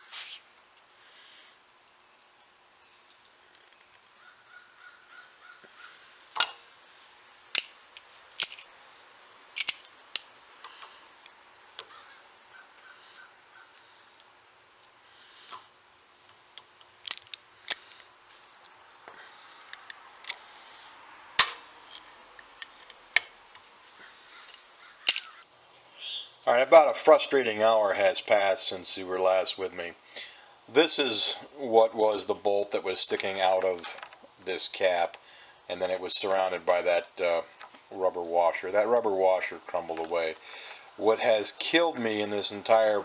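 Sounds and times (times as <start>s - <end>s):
metal pliers clicking and snapping: 7.5s - 8.7s, 9.6s - 10.3s, 21.4s - 23.4s, 25.1s - 25.4s.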